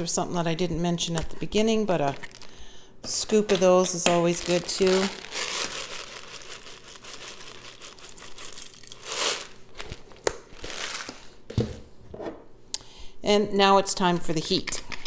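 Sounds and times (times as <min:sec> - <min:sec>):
plastic jar crinkling: 0:02.0 - 0:02.6, 0:03.3 - 0:11.3
peppercorns scooped into saucepan: 0:03.1 - 0:09.9.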